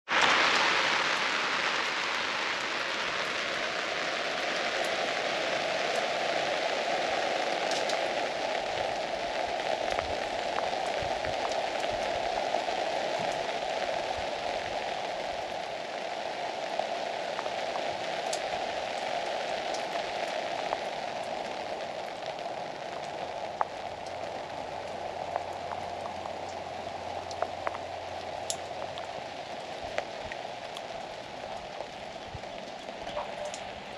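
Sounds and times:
steady rain: 0.1 - 33.9
drip ticks: 27.2 - 29.1, 31.5 - 33.7.

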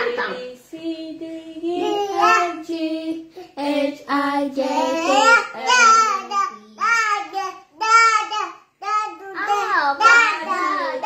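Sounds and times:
toddler singing: 0.0 - 11.0.

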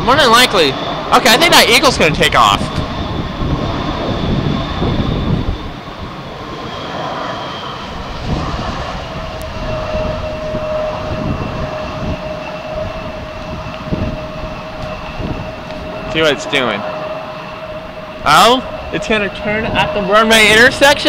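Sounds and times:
distant jet engine whine: 0.0 - 21.0
low rumble: 0.0 - 21.0.

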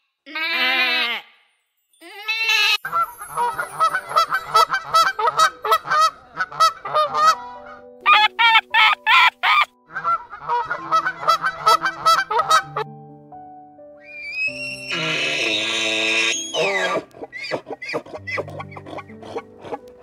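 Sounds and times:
geese honking: 2.9 - 12.8.

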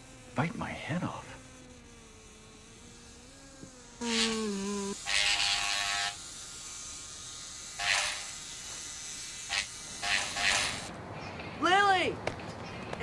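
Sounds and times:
low electric buzz: 0.0 - 11.0
loud hissing bursts: 2.0 - 10.9.

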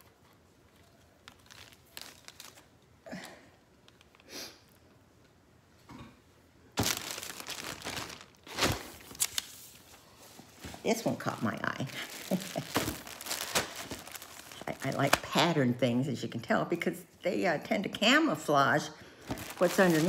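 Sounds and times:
packaging crinkling and rustling: 0.0 - 2.9, 6.8 - 15.6, 19.2 - 20.0.

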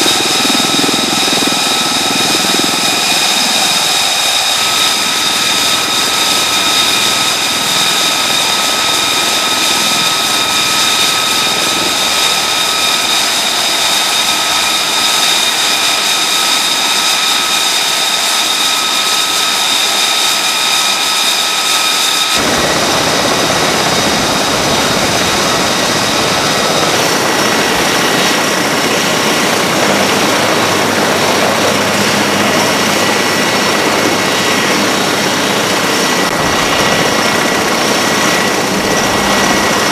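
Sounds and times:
turbine engine whine: 0.0 - 39.9
rotors turning low rushing: 22.4 - 39.9.

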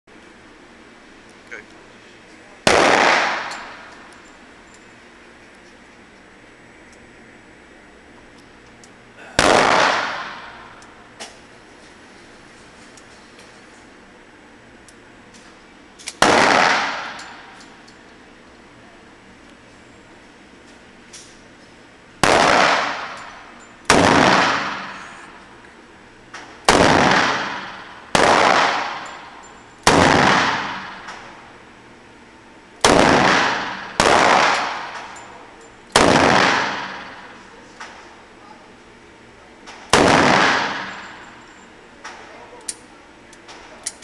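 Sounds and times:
loud revolver shots: 2.6 - 3.9, 9.4 - 11.3, 16.1 - 17.5, 22.2 - 25.1, 26.6 - 31.3, 32.8 - 35.2, 35.9 - 37.3, 39.9 - 41.2.

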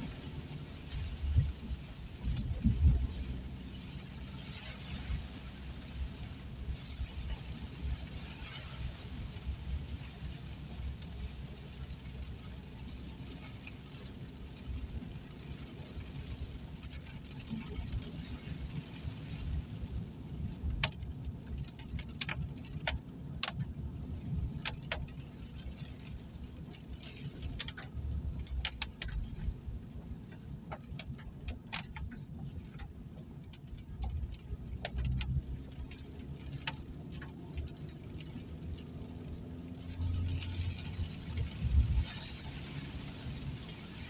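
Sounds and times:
car tyres and engine rumbling: 0.0 - 44.0
raindrops ticking on windscreen: 0.0 - 44.0.

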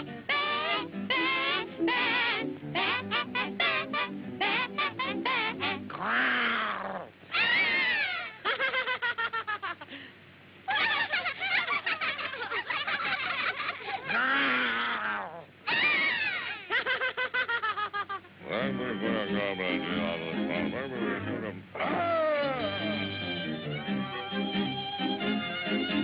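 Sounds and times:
cartoon character voices: 0.3 - 8.2, 18.5 - 23.1.

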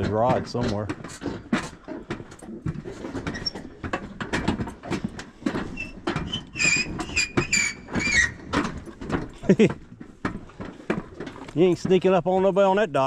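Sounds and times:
footsteps on wooden dock: 0.0 - 13.0
high drawn-out squeak: 5.8 - 8.5.

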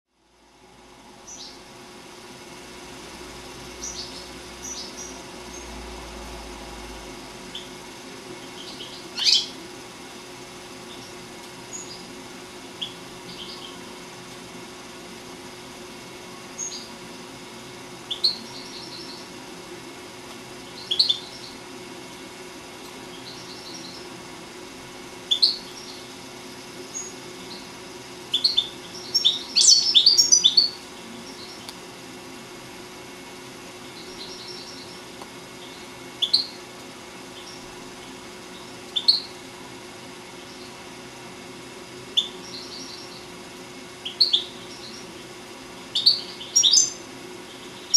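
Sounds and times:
sharp rising bird chirps: 3.8 - 5.7, 8.5 - 9.6
goldfinch twittering: 8.6 - 9.6, 20.8 - 21.6, 28.3 - 31.6, 44.0 - 45.0, 45.9 - 47.9.

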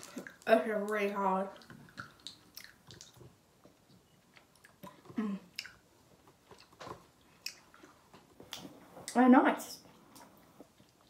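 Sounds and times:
faint chewing: 1.5 - 9.2, 9.9 - 11.0
wet mouth clicks and smacks: 1.6 - 3.3, 4.3 - 5.8, 6.6 - 7.9.

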